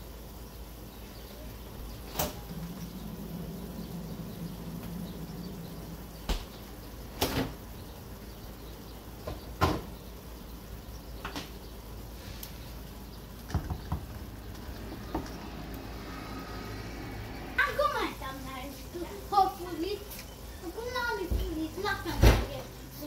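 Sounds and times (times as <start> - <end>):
low steady hiss: 0.0 - 23.0.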